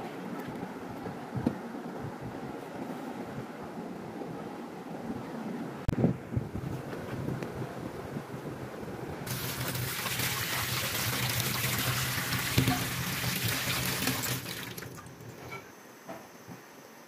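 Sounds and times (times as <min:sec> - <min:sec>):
tap water running into sink: 0:09.3 - 0:15.3.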